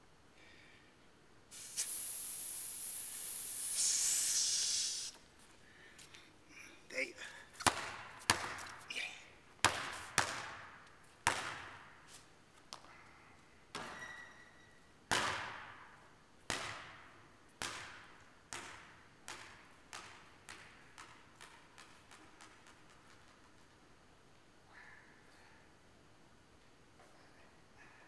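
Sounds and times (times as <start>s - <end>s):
basketball bouncing on gym floor: 7.6s - 8.8s, 9.6s - 12.0s, 13.7s - 14.3s, 15.1s - 23.8s.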